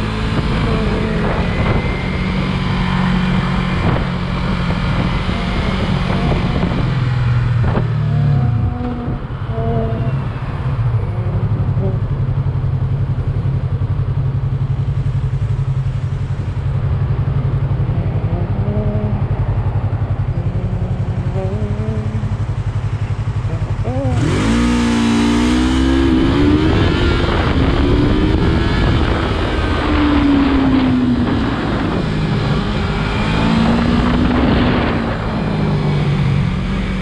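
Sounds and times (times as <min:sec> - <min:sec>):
motorcycle engine idling: 0:00.0 - 0:26.0.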